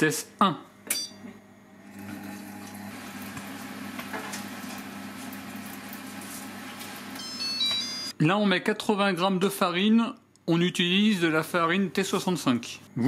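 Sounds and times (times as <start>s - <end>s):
food processor motor hum: 1.6s - 7.2s.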